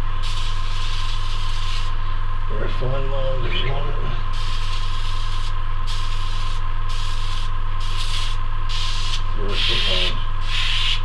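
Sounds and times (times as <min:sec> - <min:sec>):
air compressor humming: 0:00.0 - 0:11.0
airbrush hissing bursts: 0:00.2 - 0:02.0, 0:04.3 - 0:11.0.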